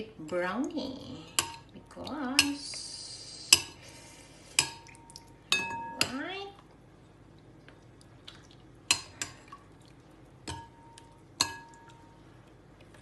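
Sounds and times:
utensil clinking on glass bowl: 4.6s - 6.2s, 10.5s - 12.1s.

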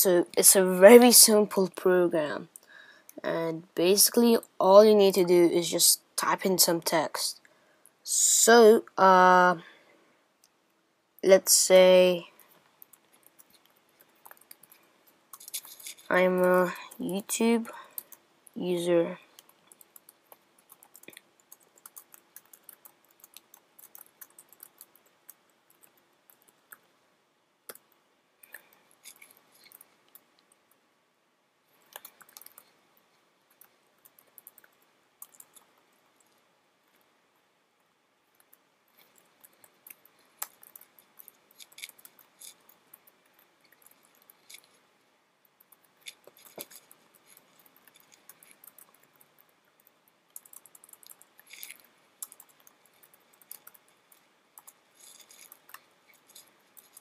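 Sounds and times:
computer keyboard typing: 12.4s - 18.2s, 19.3s - 26.9s, 27.7s - 30.8s, 31.8s - 32.8s, 33.5s - 36.4s, 38.4s - 44.8s, 45.6s - 57.0s.

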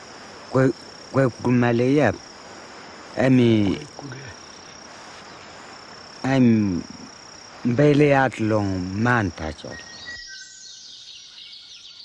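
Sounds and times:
high-pitched insect drone: 0.0s - 12.0s
man speaking: 0.5s - 2.2s, 3.2s - 4.4s, 6.2s - 9.9s.

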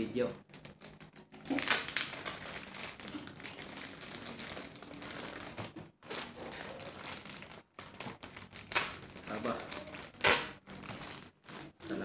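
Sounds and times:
plastic packaging crinkling: 0.4s - 12.0s.

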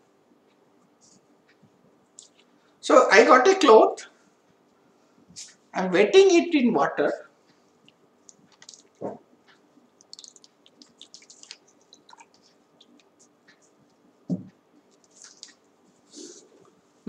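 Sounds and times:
cloth rustling in water: 9.9s - 13.2s
soft bumps: 14.3s - 14.6s.

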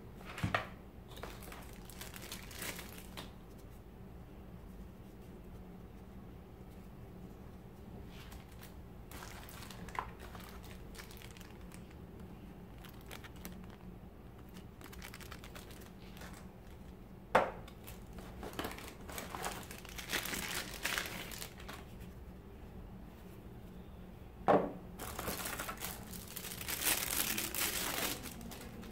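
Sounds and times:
plastic bags crinkling: 1.1s - 3.4s, 8.1s - 17.0s, 17.6s - 21.9s, 25.0s - 28.9s.

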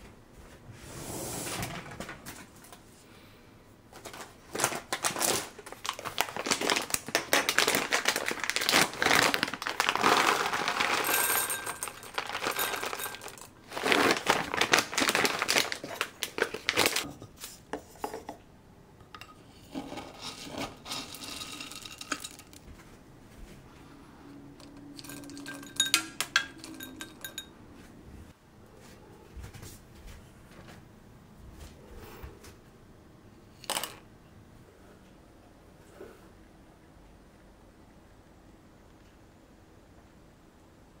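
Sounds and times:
food bag crinkling: 4.0s - 17.1s
kibble rattling into glass jar: 6.4s - 17.0s, 20.2s - 22.6s, 24.8s - 27.5s.

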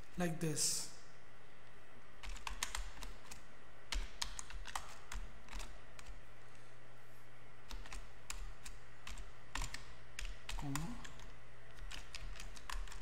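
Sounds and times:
computer keyboard typing: 2.2s - 6.2s, 7.6s - 13.0s.

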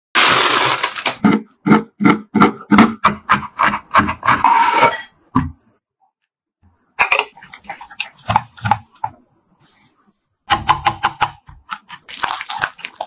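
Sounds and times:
foil crinkling: 0.2s - 1.2s
knife chopping on wooden board: 1.2s - 4.4s.

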